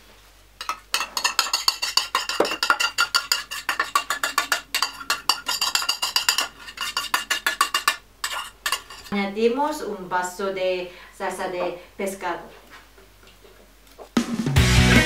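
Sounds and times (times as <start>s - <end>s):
metal spoon scraping metal bowl: 0.6s - 9.2s.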